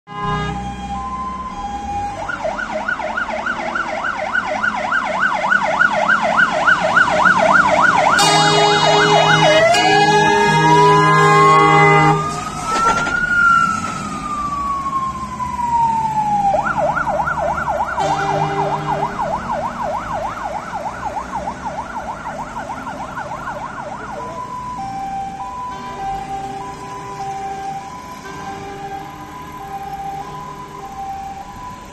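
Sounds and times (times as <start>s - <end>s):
fire engine horn: 0.1s - 2.2s, 7.2s - 14.0s, 17.6s - 21.4s, 23.4s - 31.7s
fire engine siren: 0.1s - 31.9s.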